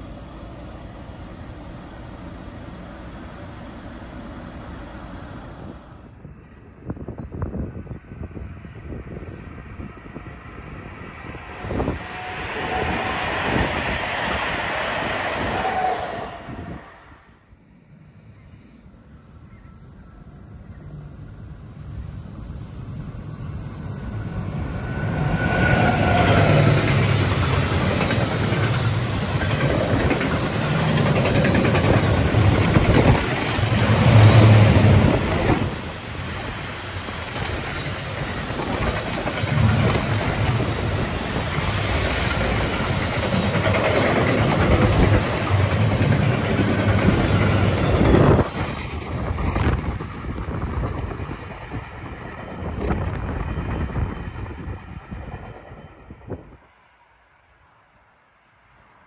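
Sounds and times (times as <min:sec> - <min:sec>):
freight train passing: 0:00.0 - 0:59.0.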